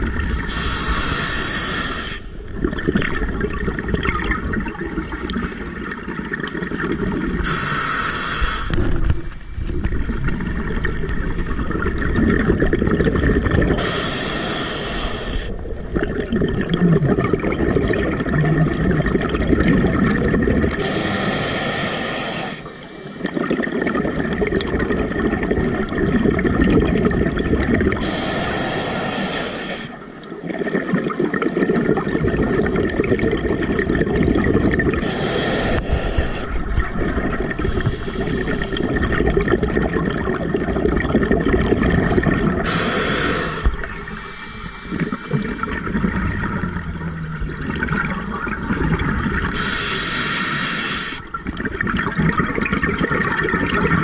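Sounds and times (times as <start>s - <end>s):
exhaled bubbles rumbling: 0.0s - 1.1s, 2.0s - 7.6s, 8.7s - 14.1s, 15.2s - 21.0s, 22.6s - 28.3s, 29.8s - 49.9s, 51.1s - 54.0s
regulator hiss on inhale: 0.5s - 2.4s, 4.9s - 5.8s, 7.4s - 9.0s, 13.8s - 15.6s, 20.8s - 23.4s, 28.0s - 30.3s, 35.0s - 36.6s, 37.6s - 39.0s, 42.6s - 45.8s, 49.5s - 51.3s.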